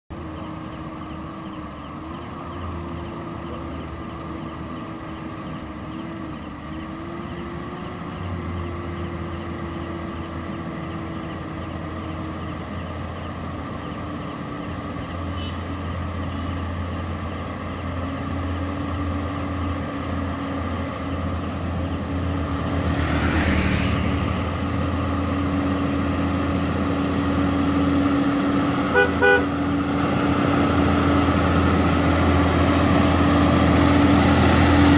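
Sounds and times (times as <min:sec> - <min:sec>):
heavy truck engine drone: 0:00.1 - 0:34.9
vehicle passing with whoosh: 0:17.7 - 0:34.9.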